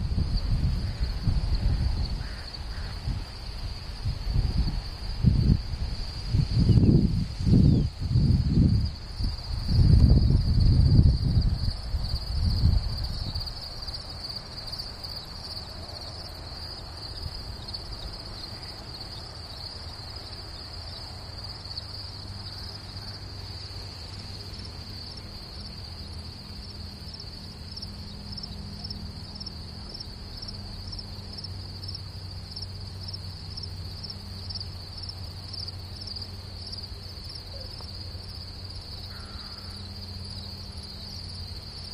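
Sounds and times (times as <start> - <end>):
crickets chirping: 0.0 - 41.9
low rumbling on microphone: 3.0 - 13.6.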